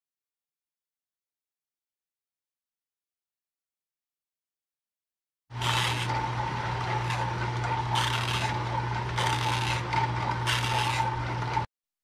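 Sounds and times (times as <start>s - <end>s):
juicer motor hum: 5.5s - 11.7s
juicer grinding vegetables: 5.6s - 11.7s.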